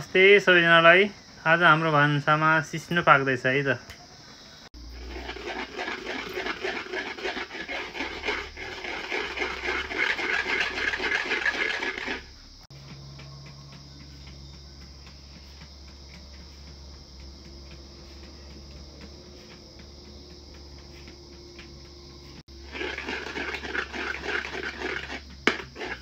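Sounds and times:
wet scraping stirring strokes: 4.8 - 13.7, 14.7 - 26.0.

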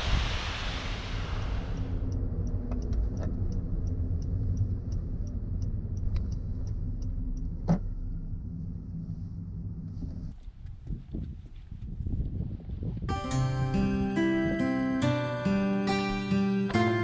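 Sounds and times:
car engine and road rumble: 0.0 - 17.0
light regular ticking: 2.0 - 9.8.

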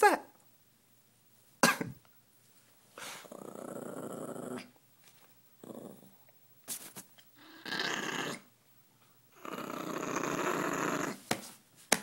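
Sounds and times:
dog growling: 3.0 - 4.8, 5.6 - 6.2, 7.4 - 8.5, 9.3 - 11.2.

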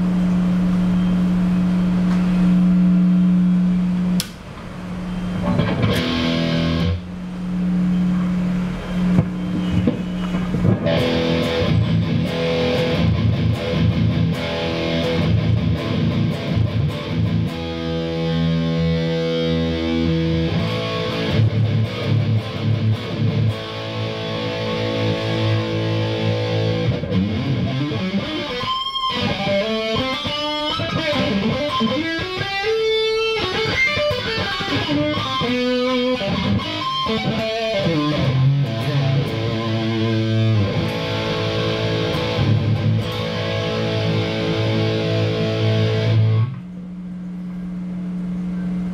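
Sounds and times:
overdriven electric guitar: 5.4 - 7.2, 9.8 - 46.7.

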